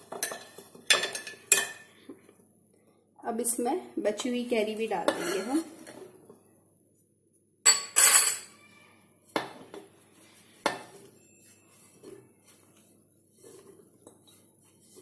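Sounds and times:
faint handling sounds: 9.7 - 15.0.

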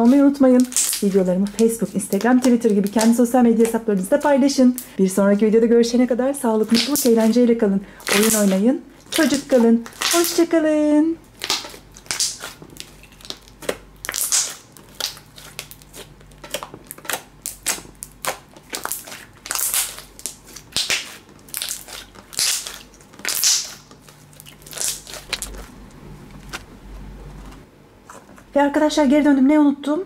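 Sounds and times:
slime squelching and crackling: 0.0 - 4.9, 6.6 - 7.4, 8.0 - 10.5, 11.2 - 26.6.

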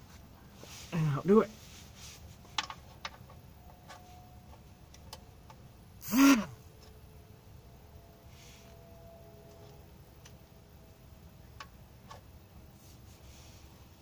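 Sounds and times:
short loud hoot: 6.0 - 6.6.

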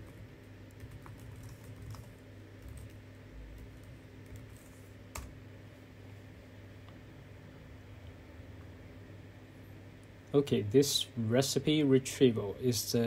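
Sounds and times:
typing on computer keyboard: 0.7 - 3.0.

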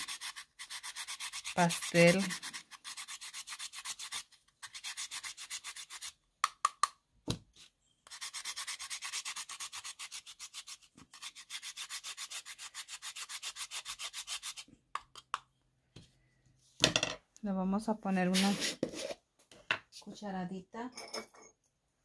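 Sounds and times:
chalk grated on metal grater: 0.0 - 6.2, 8.1 - 14.7.

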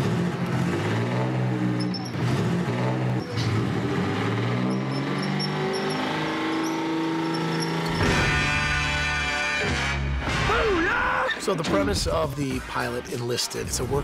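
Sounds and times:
tank engine running: 0.0 - 8.7
short high squeaks: 1.8 - 2.3, 4.5 - 8.4.

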